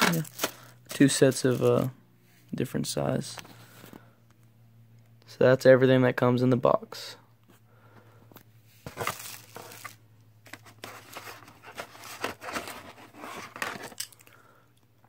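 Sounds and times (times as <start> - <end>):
plastic packaging crinkling: 0.0 - 1.9, 8.9 - 14.3.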